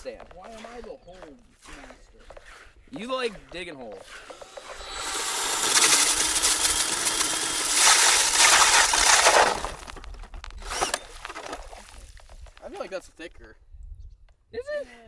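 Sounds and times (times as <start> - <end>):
drill auger grinding through ice: 1.6 - 12.3.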